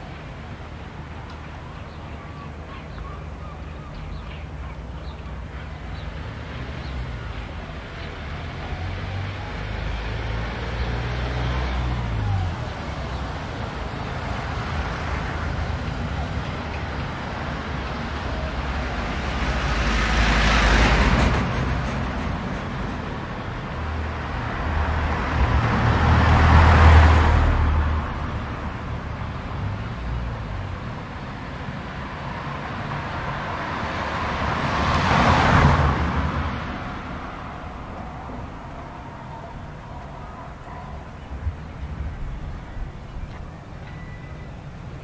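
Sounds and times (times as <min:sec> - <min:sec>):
vehicle engines in street traffic: 0:00.0 - 0:45.0
vehicle passing close: 0:05.9 - 0:42.7.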